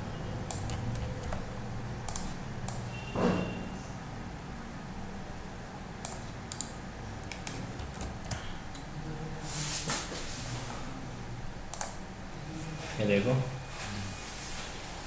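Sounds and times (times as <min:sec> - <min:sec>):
keyboard and mouse clicks: 0:00.4 - 0:02.9, 0:06.0 - 0:08.9, 0:11.7 - 0:12.0.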